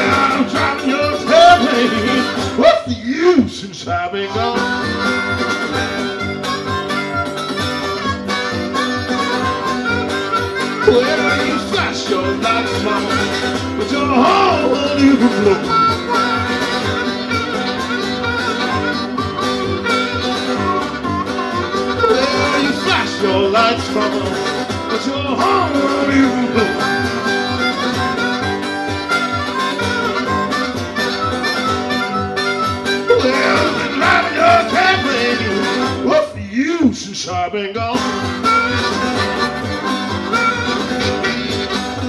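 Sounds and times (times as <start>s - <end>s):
harmonica playing blues: 0.0s - 36.4s, 37.9s - 42.0s
acoustic guitar strumming: 0.0s - 42.0s.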